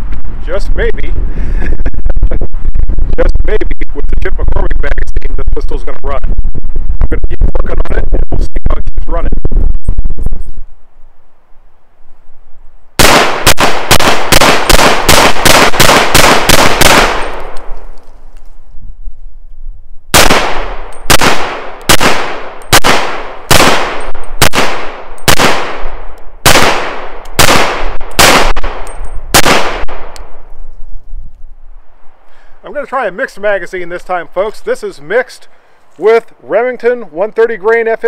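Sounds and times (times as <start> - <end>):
pistol shots: 13.0 - 17.7, 20.1 - 30.3.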